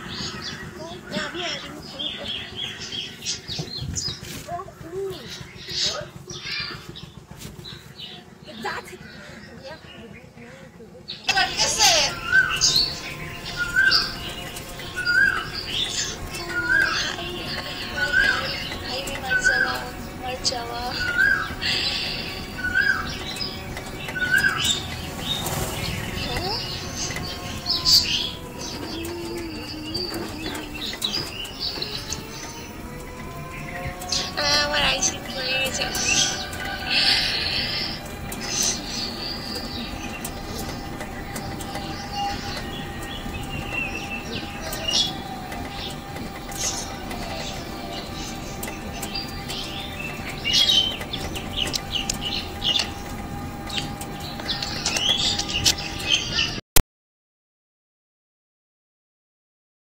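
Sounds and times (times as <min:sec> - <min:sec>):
birds chirping: 0:00.0 - 0:56.6
low wavering coo: 0:12.2 - 0:25.0, 0:25.8 - 0:32.2, 0:32.8 - 0:48.4.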